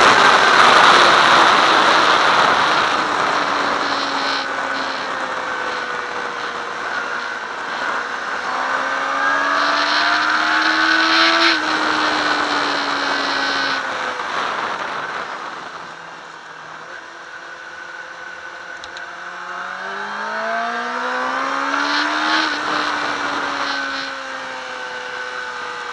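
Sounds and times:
wind rush over microphone: 0.0 - 8.2, 9.6 - 16.2
motorcycle engine revving: 0.0 - 25.9.

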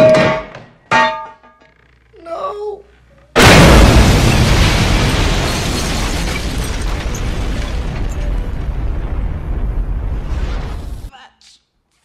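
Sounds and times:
deep rolling explosion rumble: 3.4 - 11.1.

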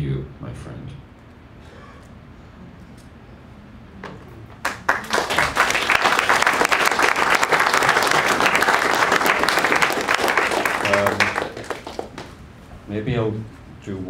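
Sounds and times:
audience applause: 4.6 - 12.4.

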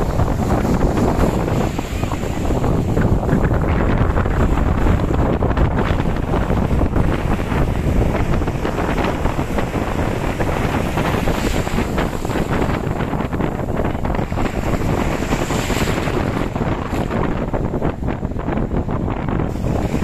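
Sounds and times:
sea waves breaking: 0.0 - 20.0
wind buffeting microphone: 0.0 - 20.0.

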